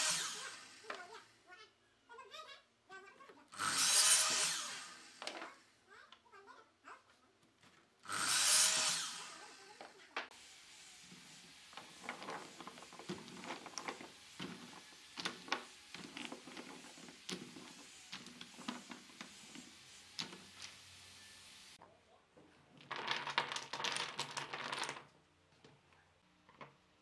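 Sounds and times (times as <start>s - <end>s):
miter saw cutting wood: 0.0s - 1.2s, 3.5s - 5.6s, 8.0s - 21.8s
wooden blocks dropped into plastic basket: 11.8s - 20.8s, 22.8s - 25.1s.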